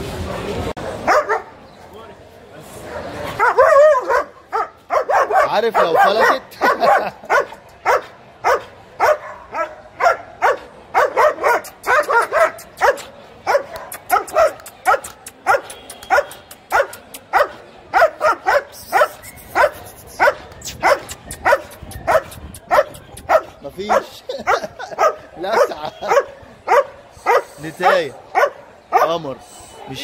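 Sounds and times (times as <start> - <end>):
dog barking: 1.0 - 1.6, 3.4 - 29.2.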